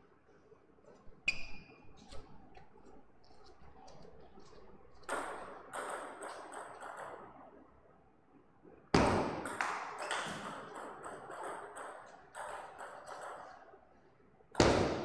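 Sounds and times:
table tennis ball bouncing: 5.1s - 7.4s, 9.0s - 13.7s.

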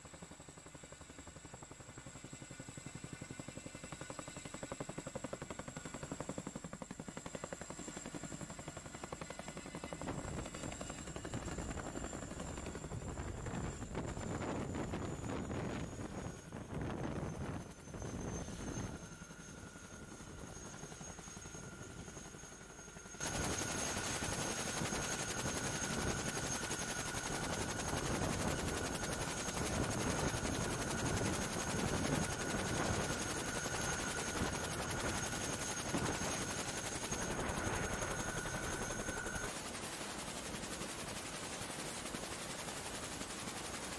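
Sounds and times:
helicopter rotor chop: 0.0s - 43.9s
high turbine whine: 7.2s - 39.8s.

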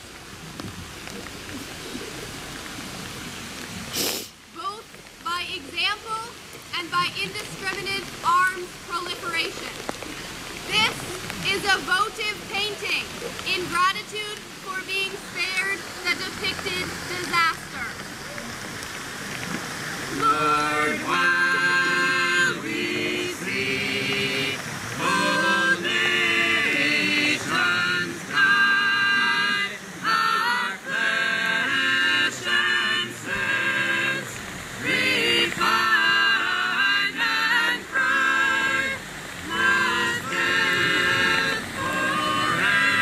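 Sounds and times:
group singing held chords: 20.1s - 43.0s.

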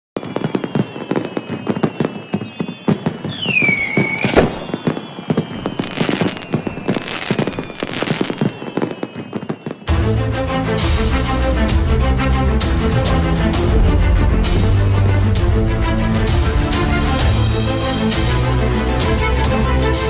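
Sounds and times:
falling firework whistle: 0.2s - 9.9s
fireworks crackling and popping: 0.2s - 9.9s
loud firework bang: 2.8s - 9.9s
music: 9.8s - 20.0s.

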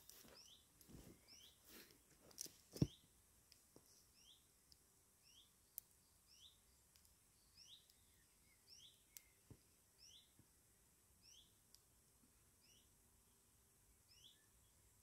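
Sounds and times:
soft clicks: 6.9s - 7.2s, 9.1s - 9.4s.

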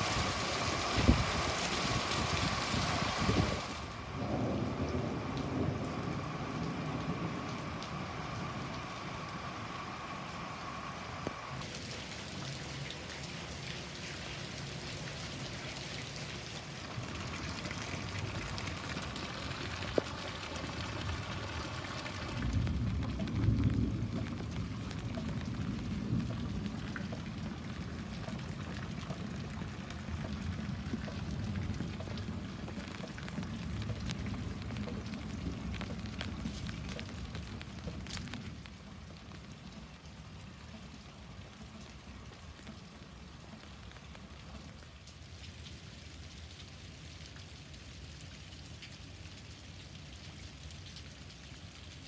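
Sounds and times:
heavy rain on pavers: 0.0s - 52.0s
low rumble: 16.8s - 38.9s.

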